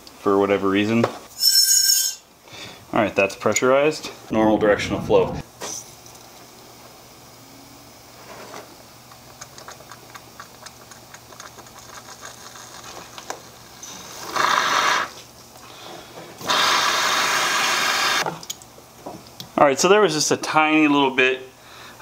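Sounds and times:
compressed air hissing blasts: 0:16.4 - 0:18.2.

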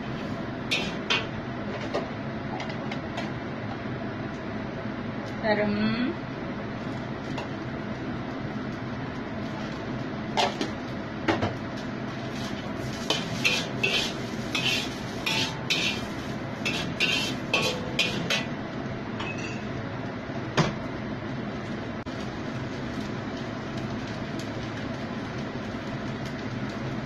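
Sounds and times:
metal spatula scraping a wok: 0:00.0 - 0:01.2, 0:12.3 - 0:18.5.

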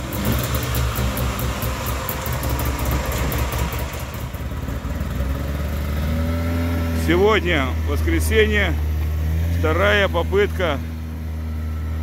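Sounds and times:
snowmobile engine idling: 0:00.0 - 0:06.2.

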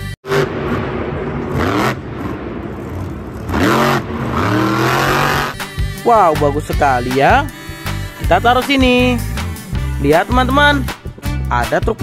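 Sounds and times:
engine revving: 0:00.2 - 0:06.0.

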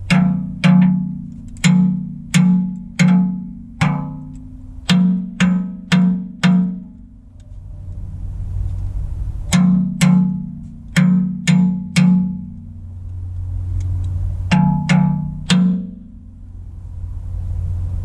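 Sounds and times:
hammer striking steel punch: 0:00.0 - 0:07.0, 0:09.5 - 0:12.5, 0:14.5 - 0:16.2.

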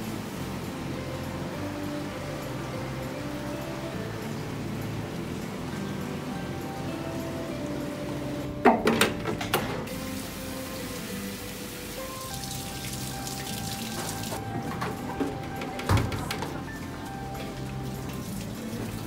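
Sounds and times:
background music: 0:00.0 - 0:19.0
water running into a sink: 0:09.9 - 0:19.0.

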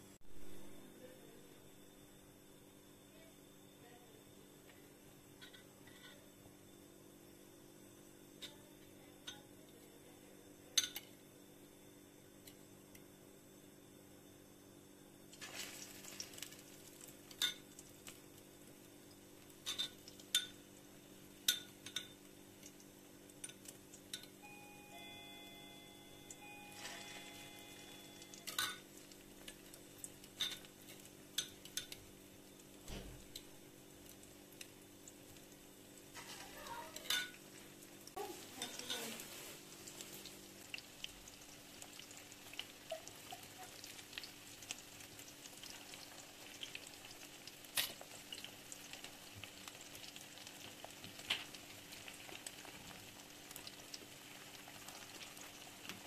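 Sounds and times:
metal spoon clinking on bowl: 0:10.8 - 0:11.1, 0:28.5 - 0:28.8, 0:37.0 - 0:37.4
hot oil sizzling: 0:15.3 - 0:56.0.

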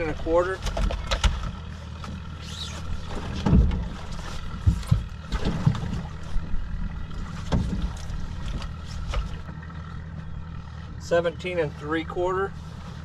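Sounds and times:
low engine hum: 0:00.0 - 0:13.0
knocks and thuds on boat deck: 0:03.0 - 0:06.4, 0:07.2 - 0:10.3.

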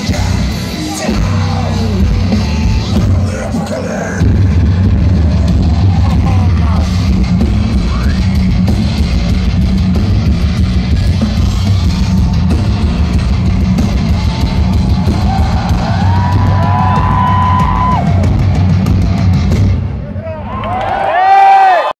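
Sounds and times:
electric guitars: 0:00.0 - 0:20.0
driving drum kit: 0:00.0 - 0:20.4.

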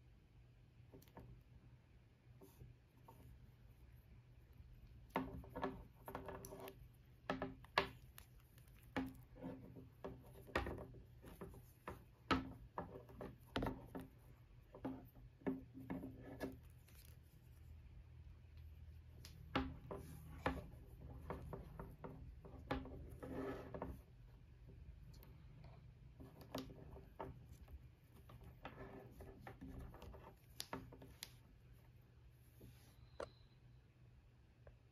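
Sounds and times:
cable rubbing and sliding: 0:19.5 - 0:24.2, 0:25.2 - 0:31.6.

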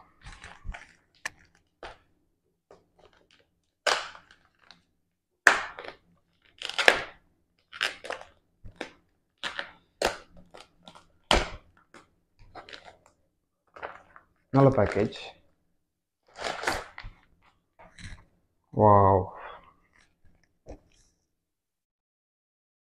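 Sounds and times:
plastic wrap crinkling and tearing: 0:00.0 - 0:02.1, 0:02.9 - 0:15.3, 0:16.2 - 0:18.2.

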